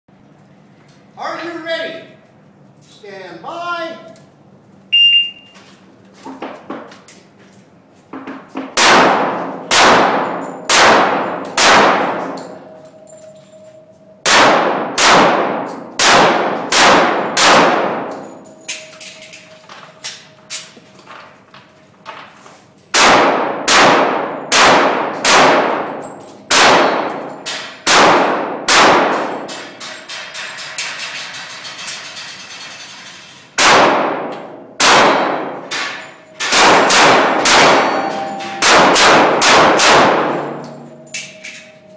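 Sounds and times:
pistol shots echoing indoors: 0:08.6 - 0:13.0, 0:14.2 - 0:20.7, 0:22.9 - 0:31.6, 0:33.6 - 0:41.9.

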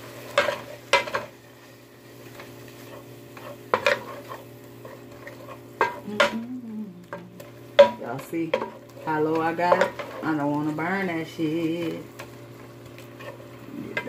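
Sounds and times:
light sizzle: 0:00.0 - 0:14.0
wooden spoon scraping pan: 0:08.5 - 0:10.8, 0:12.2 - 0:14.0.

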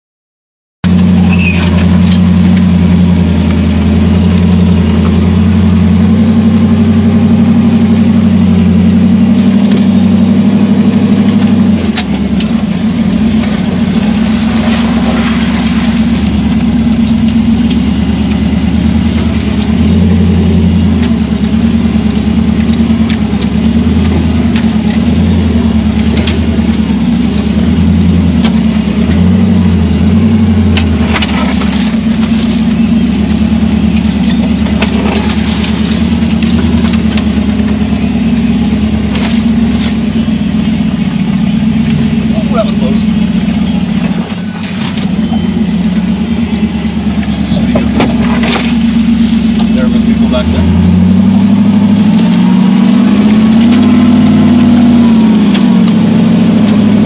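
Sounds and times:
vehicle engine running: 0:00.8 - 0:57.0
knocks and scrapes: 0:30.6 - 0:37.8, 0:39.0 - 0:40.2, 0:43.9 - 0:50.7.

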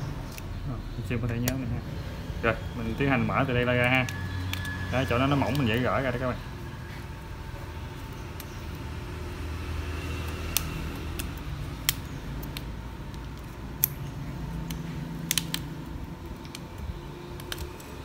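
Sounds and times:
plastic clips clicking: 0:10.2 - 0:18.0.

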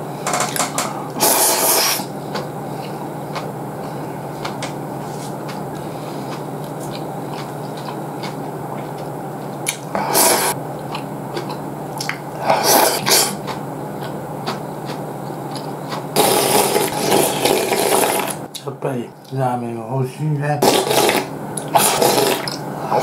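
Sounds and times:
steady background hum: 0:00.0 - 0:23.0
chewing: 0:01.3 - 0:18.4
noodles being slurped: 0:15.5 - 0:18.4, 0:20.6 - 0:23.0.

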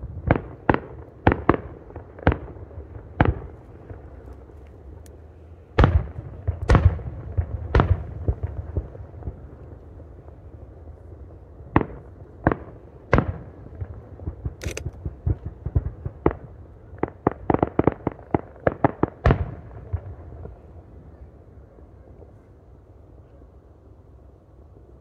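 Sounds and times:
firework booms: 0:00.0 - 0:04.2, 0:05.8 - 0:09.5, 0:11.7 - 0:20.7
rumble: 0:00.0 - 0:25.0.

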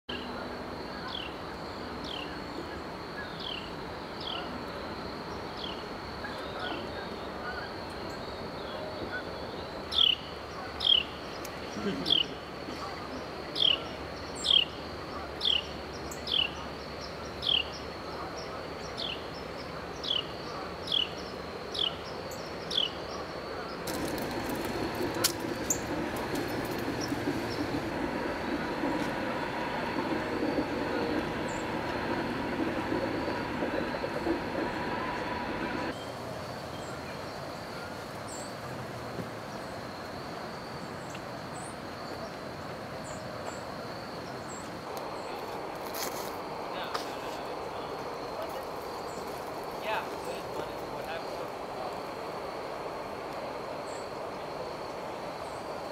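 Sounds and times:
faint insect drone: 0:00.1 - 0:55.9
steady background noise: 0:00.1 - 0:55.9
broad rumbling noise: 0:23.8 - 0:35.9.

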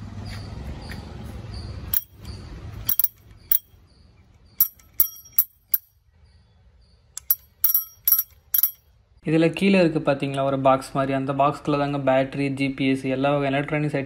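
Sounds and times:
bicycle bell dings: 0:02.0 - 0:02.3, 0:02.9 - 0:03.7, 0:04.6 - 0:05.9, 0:07.2 - 0:08.8.

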